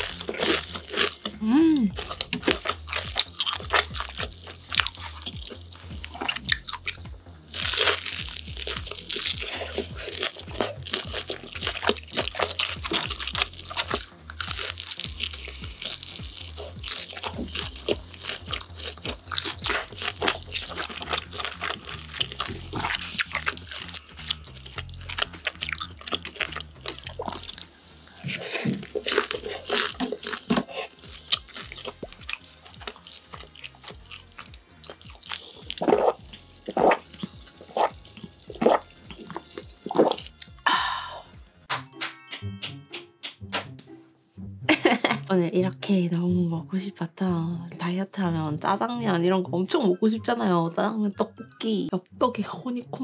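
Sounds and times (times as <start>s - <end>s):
crunchy chewing: 0.0s - 40.6s.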